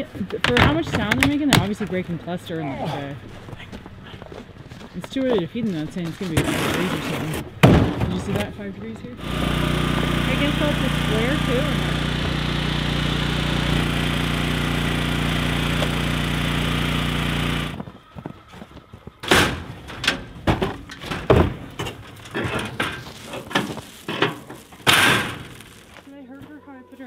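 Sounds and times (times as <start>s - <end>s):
knocks and thumps: 0.0s - 2.0s, 6.3s - 8.6s, 19.0s - 25.6s
engine-like hum: 8.2s - 26.6s.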